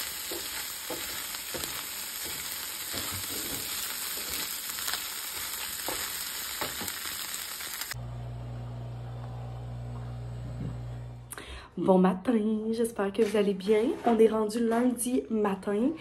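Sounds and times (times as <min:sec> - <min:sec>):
food sizzling in frying pan: 0:00.0 - 0:08.0
wooden spatula scraping pan: 0:00.2 - 0:04.5, 0:13.3 - 0:14.4.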